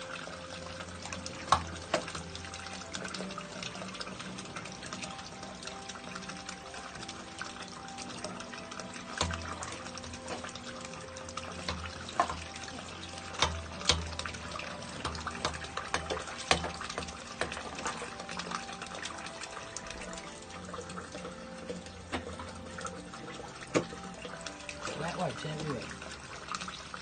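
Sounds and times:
dirty water sloshing in drain: 0:00.0 - 0:27.0
drain rod knocking and scraping: 0:01.1 - 0:05.1, 0:08.2 - 0:20.2, 0:20.8 - 0:26.2.

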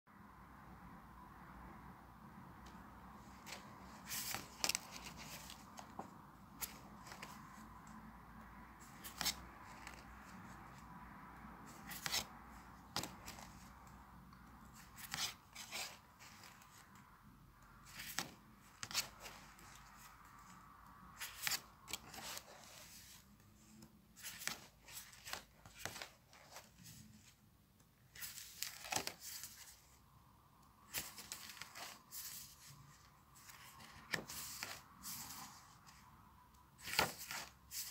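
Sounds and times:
paper pages turning: 0:03.2 - 0:07.6, 0:08.8 - 0:10.6, 0:11.7 - 0:13.7, 0:14.7 - 0:17.0, 0:17.8 - 0:27.4, 0:28.0 - 0:30.0, 0:30.8 - 0:36.0, 0:36.8 - 0:37.9.

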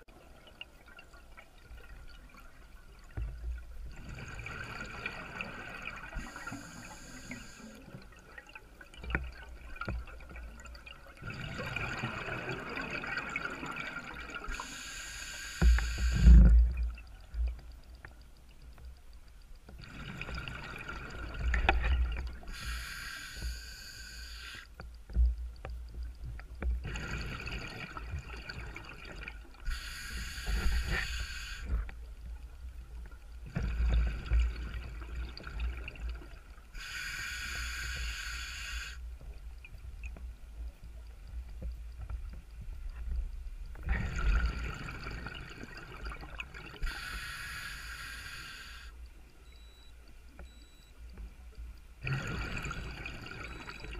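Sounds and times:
regulator inhalation hiss: 0:06.2 - 0:07.8, 0:14.5 - 0:16.5, 0:22.5 - 0:24.7, 0:29.7 - 0:31.8, 0:36.8 - 0:39.1, 0:46.8 - 0:49.0
exhaled bubbles burbling: 0:08.1 - 0:14.5, 0:19.8 - 0:22.5, 0:26.8 - 0:29.6, 0:33.5 - 0:36.6, 0:43.8 - 0:46.8, 0:52.0 - 0:53.9.

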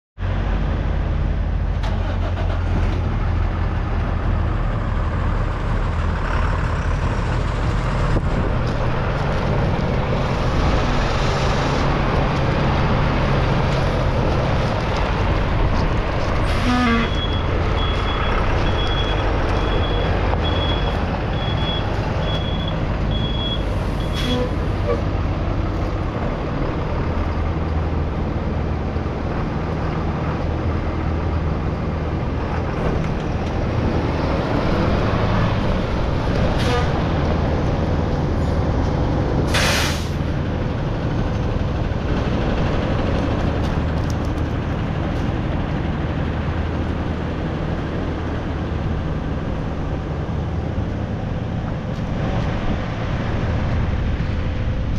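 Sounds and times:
truck engine idling: 0:00.3 - 0:36.4.

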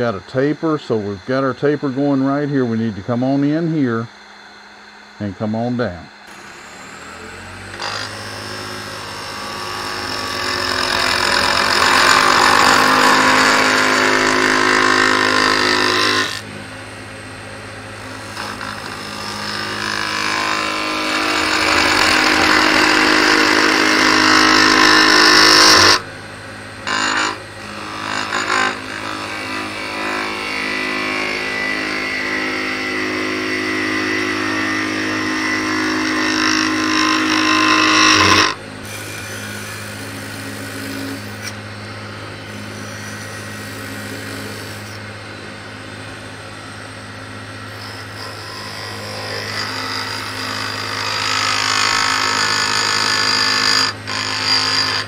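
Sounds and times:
wood lathe humming: 0:00.0 - 0:55.0
turning tool cutting wood: 0:06.3 - 0:16.6, 0:17.9 - 0:26.2, 0:26.8 - 0:41.6, 0:42.4 - 0:45.1, 0:47.5 - 0:55.0.

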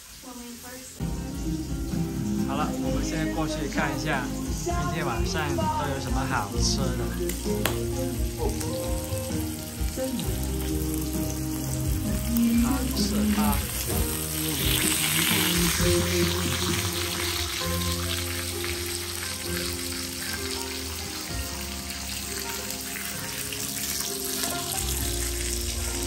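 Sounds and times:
meat sizzling on a grill pan: 0:00.0 - 0:26.0
background music: 0:01.0 - 0:26.0.

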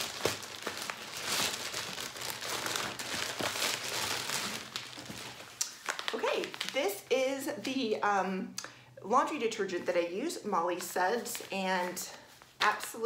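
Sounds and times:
plastic mailer crinkling: 0:00.0 - 0:07.0.

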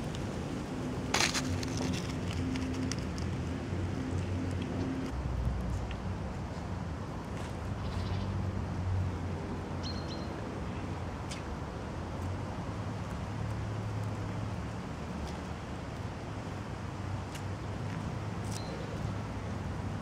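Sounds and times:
distant traffic rumble: 0:00.0 - 0:20.0.

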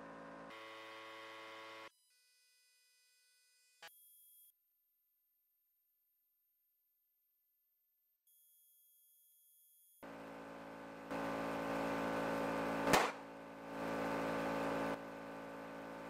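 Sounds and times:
air compressor running: 0:10.0 - 0:16.0
sharp loud pop: 0:12.8 - 0:13.2.

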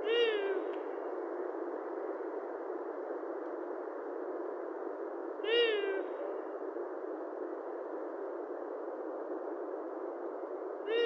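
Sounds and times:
owl calling: 0:00.0 - 0:00.7, 0:05.4 - 0:06.4
steady background noise: 0:00.0 - 0:11.0.

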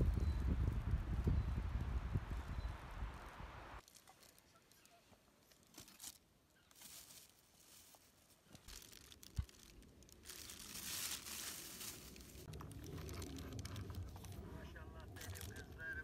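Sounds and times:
rustling and handling noise: 0:03.8 - 0:16.0.

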